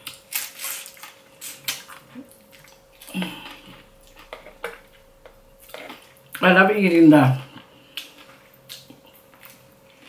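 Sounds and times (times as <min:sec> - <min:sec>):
brief low hum: 0:02.2 - 0:06.8
person chewing and lip smacking: 0:07.9 - 0:10.0.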